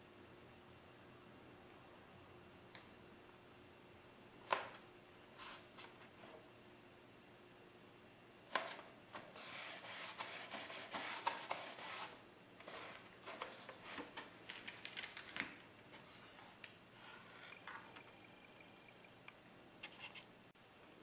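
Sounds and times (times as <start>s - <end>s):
hands rubbing foam model: 9.3s - 13.0s.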